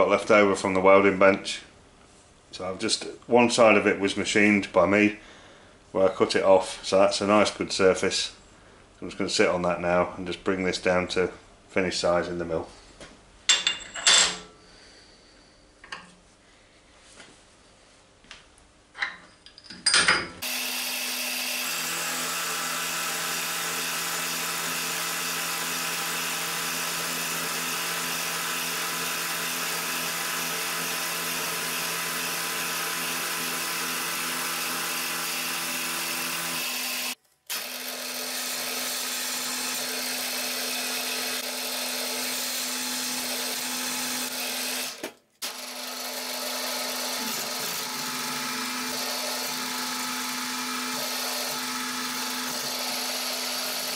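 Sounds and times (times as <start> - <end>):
drill boring into metal plate: 20.4 - 53.9
milling machine cutting metal: 20.4 - 53.9.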